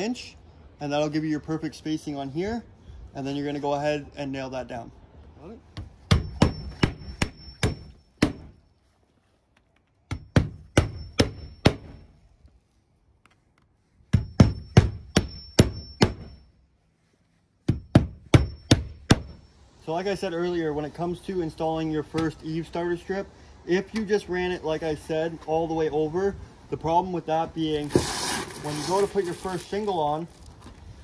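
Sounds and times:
hammer striking nails: 5.8 - 8.6, 10.1 - 12.0, 14.1 - 16.4.

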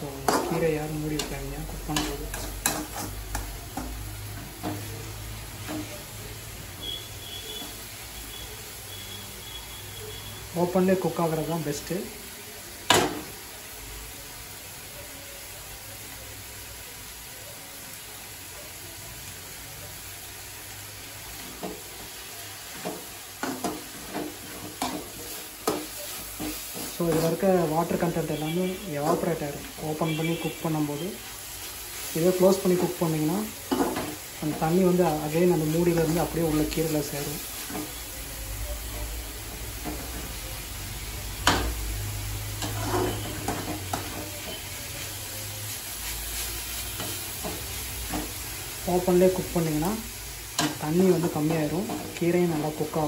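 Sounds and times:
vegetables sizzling in pan: 0.0 - 53.0
ladle scraping a pan: 1.9 - 3.5, 42.6 - 44.7.

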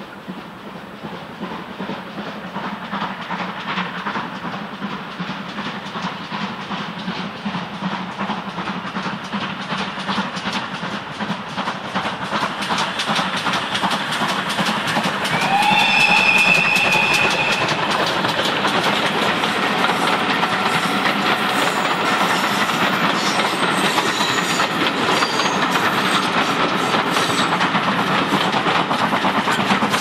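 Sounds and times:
steam locomotive exhaust beats: 0.0 - 30.0
steam hissing: 0.3 - 30.0
train whistle: 15.3 - 17.9.

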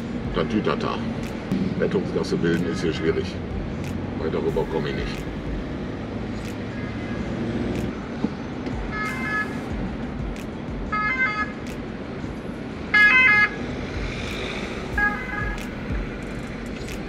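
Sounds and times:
two-tone siren: 15.0 - 15.6.

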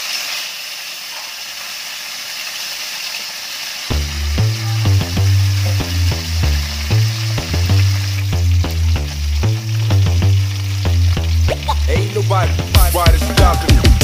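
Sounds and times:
fish sizzling in hot oil: 0.0 - 14.0
music with heavy bass and beat: 3.9 - 14.0.

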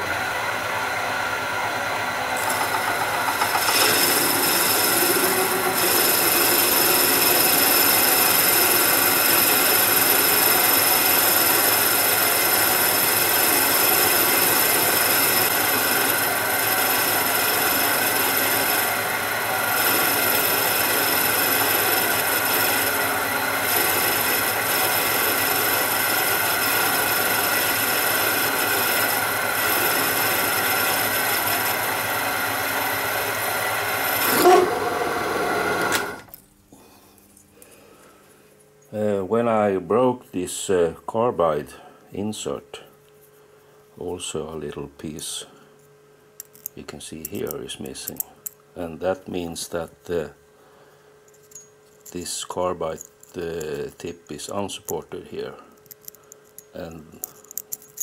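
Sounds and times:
lathe cutting metal: 0.4 - 36.2.

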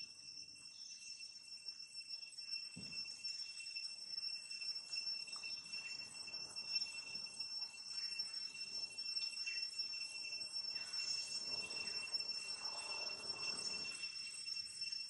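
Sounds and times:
insects shrilling: 7.9 - 15.0.

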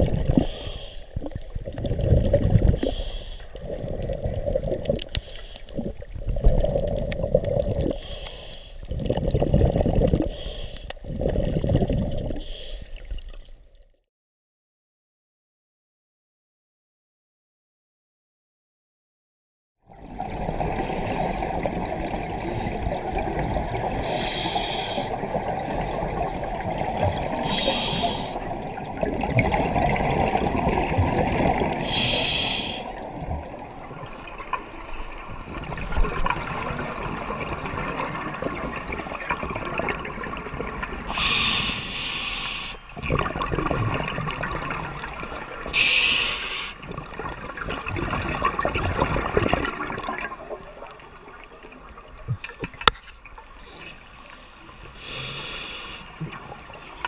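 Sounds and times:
muffled underwater rush: 0.0 - 8.2, 8.8 - 13.4, 19.9 - 52.5
breath through scuba regulator: 0.3 - 1.5, 2.7 - 4.1, 5.1 - 6.0, 6.6 - 9.4, 10.2 - 13.2, 24.0 - 26.3, 27.3 - 28.5, 31.8 - 33.0, 40.7 - 43.1, 45.7 - 46.8, 53.5 - 56.2
bubbles rising: 1.2 - 3.0, 3.6 - 8.0, 8.9 - 10.3, 11.0 - 12.4, 19.9 - 24.2, 25.1 - 27.5, 28.4 - 31.9, 33.0 - 41.1, 43.0 - 45.7, 46.8 - 51.4.

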